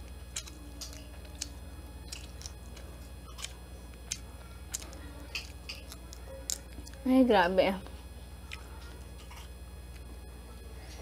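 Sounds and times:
shrimp shell cracking: 0:00.1 - 0:07.0.

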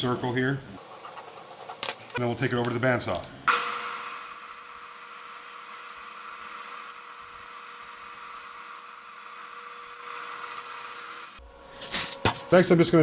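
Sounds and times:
bandsaw cutting wood: 0:03.5 - 0:11.4.

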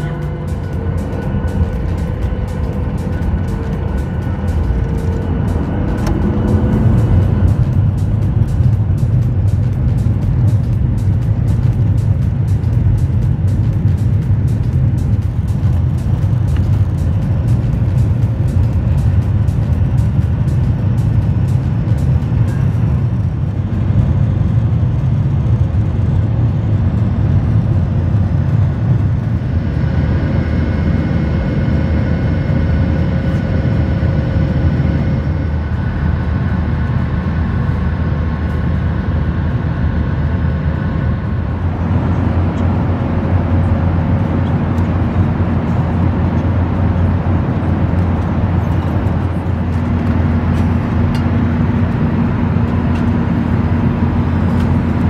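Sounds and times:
faint steady tones: 0:00.0 - 0:23.5
rushing air: 0:00.0 - 0:25.3
jet engine drone: 0:00.0 - 0:55.0.

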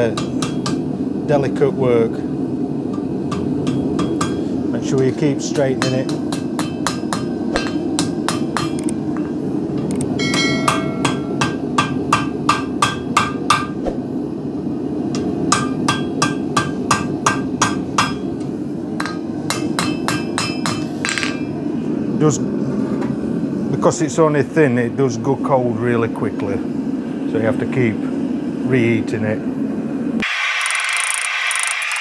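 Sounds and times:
hammer striking steel on anvil: 0:00.2 - 0:00.8, 0:03.3 - 0:04.4, 0:05.8 - 0:08.8, 0:10.2 - 0:13.8, 0:15.5 - 0:18.3, 0:19.0 - 0:21.5.

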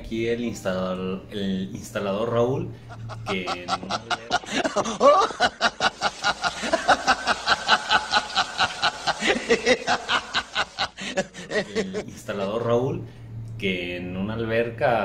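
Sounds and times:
cartoon character laughing: 0:02.9 - 0:12.0.

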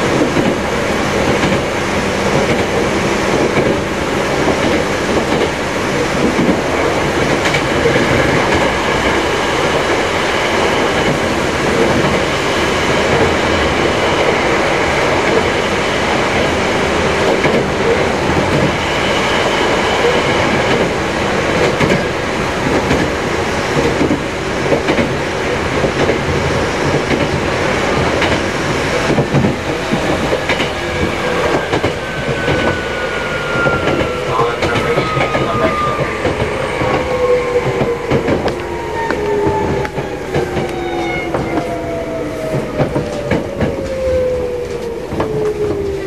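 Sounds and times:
train wheels clicking over rail joints: 0:28.0 - 0:32.8.

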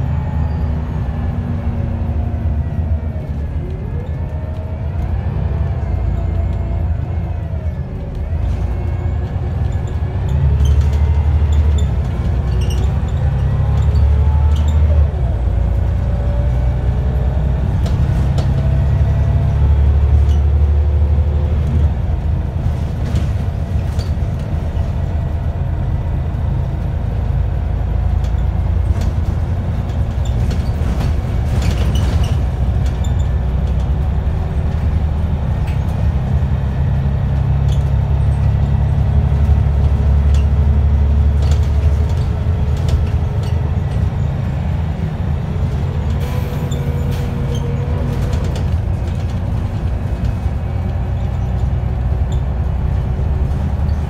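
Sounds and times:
bus body rattles and clicks: 0:00.0 - 0:54.0
bus diesel engine rumble: 0:00.0 - 0:54.0
rising engine whine: 0:00.0 - 0:54.0.

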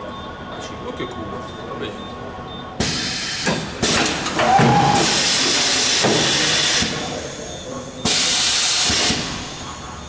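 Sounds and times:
compressed air hissing: 0:02.8 - 0:03.7.

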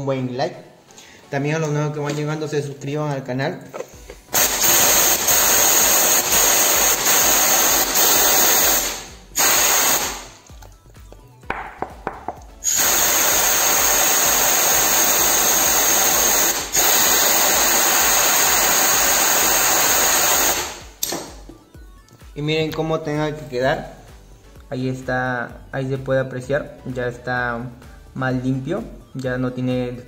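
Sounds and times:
compressed air blow gun hissing: 0:04.3 - 0:10.4, 0:12.6 - 0:21.0.

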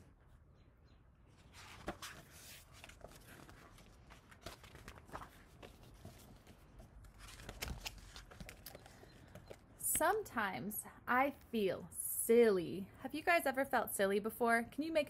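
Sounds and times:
book pages turning: 0:01.3 - 0:09.6.

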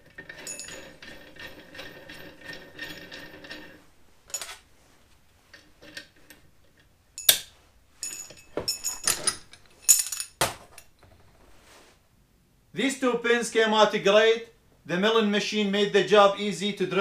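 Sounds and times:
nut rattling along a bolt: 0:00.0 - 0:04.6, 0:05.5 - 0:11.2
metallic clinks of washers: 0:00.1 - 0:01.5, 0:04.3 - 0:04.6, 0:07.2 - 0:10.9.

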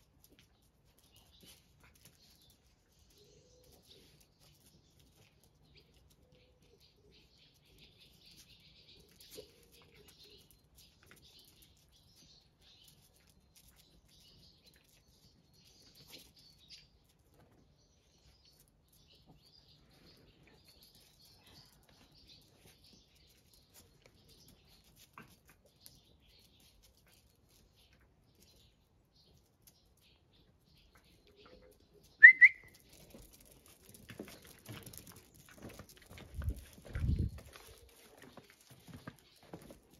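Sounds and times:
puppies scuffling: 0:00.0 - 0:39.9
faint bird chirps: 0:31.2 - 0:32.8
loud rising whistle: 0:32.2 - 0:32.7.

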